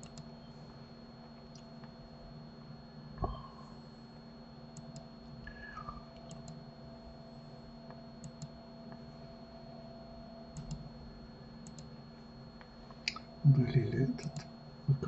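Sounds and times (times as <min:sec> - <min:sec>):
computer mouse clicking: 0:00.0 - 0:00.3, 0:06.2 - 0:06.6, 0:08.2 - 0:08.5, 0:10.6 - 0:10.8, 0:11.6 - 0:11.9
low hum: 0:00.0 - 0:15.0.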